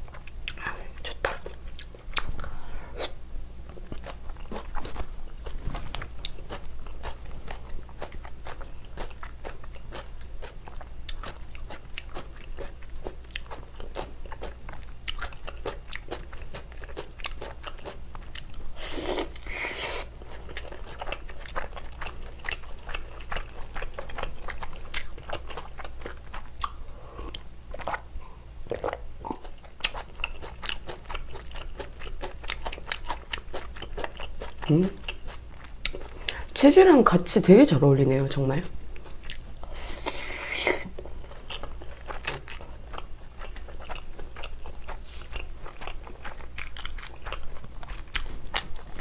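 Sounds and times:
wet chewing with lip clicks: 0.0 - 28.1, 28.7 - 36.6, 38.9 - 49.0.

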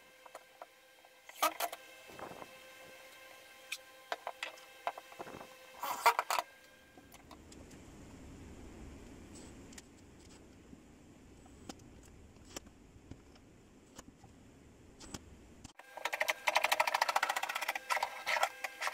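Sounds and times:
low steady hum: 0.0 - 18.9.

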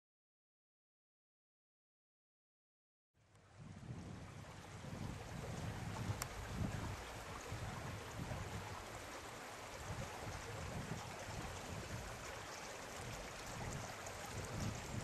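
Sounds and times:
brook running: 3.4 - 15.0
wind buffeting microphone: 3.5 - 15.0.

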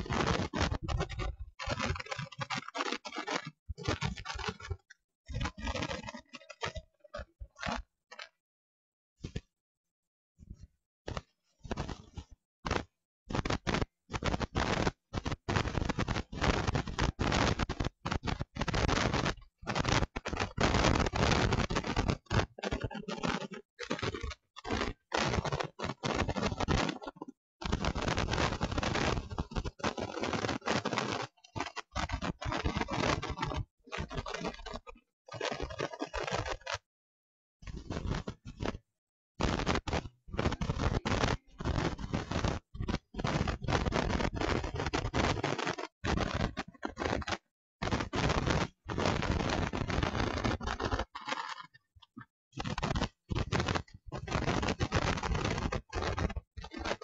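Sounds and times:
harsh scratchy noise: 0.0 - 8.4, 11.1 - 36.9, 37.6 - 57.0.

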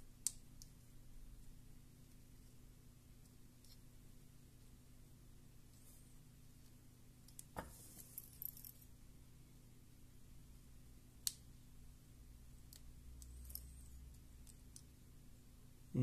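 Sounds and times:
low steady hum: 0.0 - 16.0
faint clicks of small parts: 0.2 - 0.8, 3.2 - 3.9, 6.6 - 8.9, 12.6 - 15.0.

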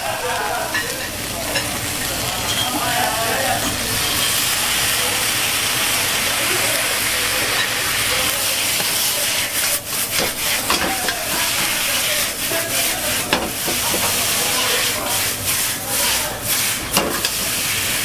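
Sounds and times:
sauce sizzling in a wok: 0.0 - 18.0
metal ladle scraping wok: 8.4 - 18.0.

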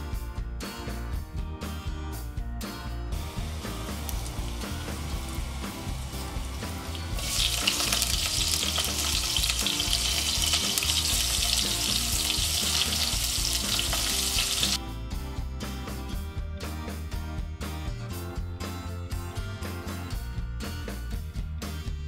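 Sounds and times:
background music: 0.0 - 22.0
hot oil sizzling: 3.2 - 14.8.

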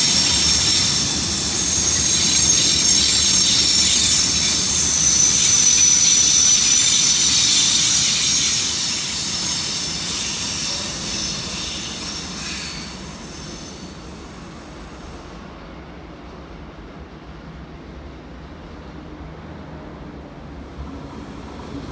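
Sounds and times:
metallic wheel squeal: 0.0 - 14.2
train wheels rumbling: 0.0 - 21.9.

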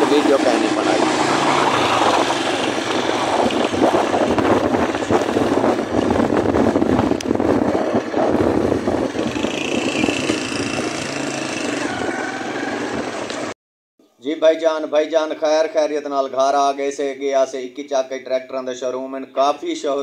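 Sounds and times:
motorcycle engine running: 0.0 - 13.5
wind buffeting microphone: 0.0 - 13.5.

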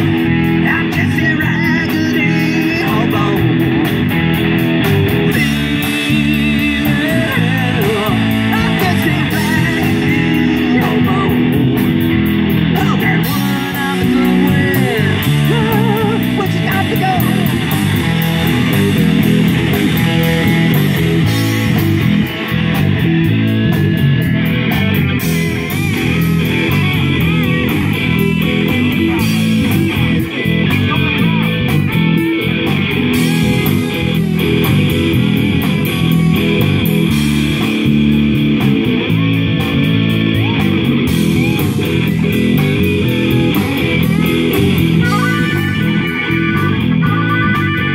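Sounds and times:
bass guitar: 0.0 - 47.9
drum kit with cymbals: 0.0 - 47.9
electric guitars: 0.0 - 47.9.

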